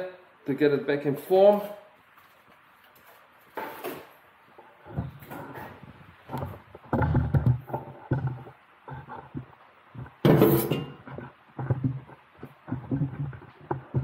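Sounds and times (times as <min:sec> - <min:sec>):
sheet metal thumps and knocks: 0:10.1 - 0:12.1.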